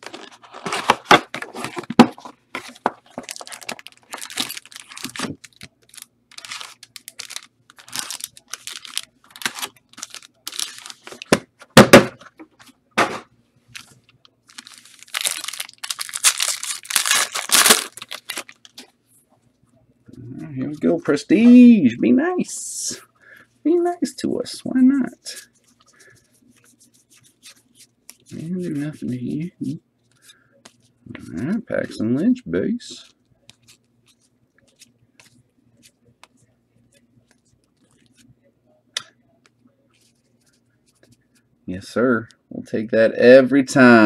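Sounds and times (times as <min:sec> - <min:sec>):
cards and packaging rustling: 0:00.0 - 0:11.4, 0:13.7 - 0:18.9
foil wrappers tearing and crinkling: 0:03.1 - 0:11.3, 0:14.5 - 0:18.8.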